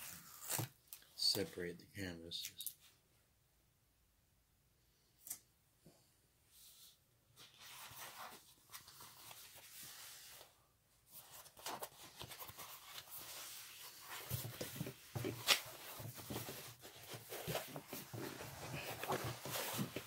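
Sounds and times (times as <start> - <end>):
canvas and film rustling: 11.2 - 20.0.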